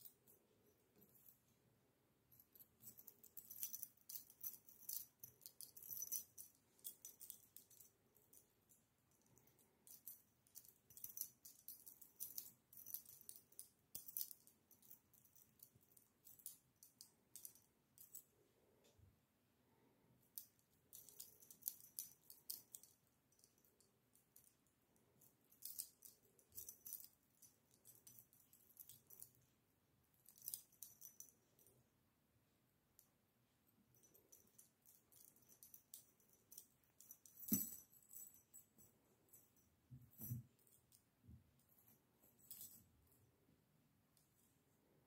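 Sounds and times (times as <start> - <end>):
keys jingling: 34.0 - 38.6.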